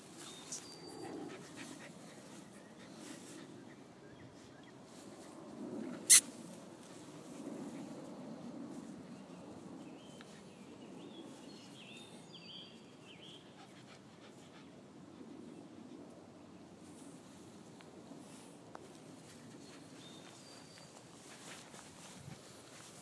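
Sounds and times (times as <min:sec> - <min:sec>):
puppies panting: 0:00.4 - 0:03.7.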